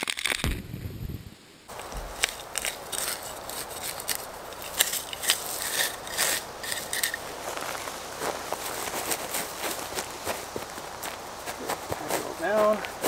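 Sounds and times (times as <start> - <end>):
soil scraped into hole by trowel: 1.7 - 8.0
boot stepping on soil: 1.7 - 13.0.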